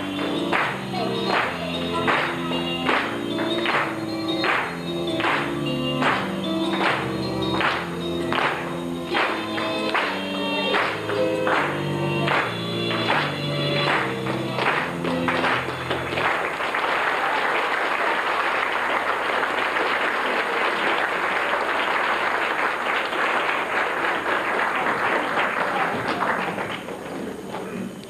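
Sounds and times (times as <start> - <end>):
song: 0.0 - 16.3
audience clapping: 0.0 - 28.0.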